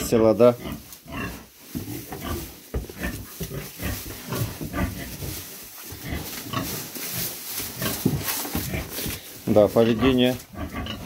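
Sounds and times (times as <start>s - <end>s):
pig grunting: 0.0s - 5.3s, 7.8s - 11.0s.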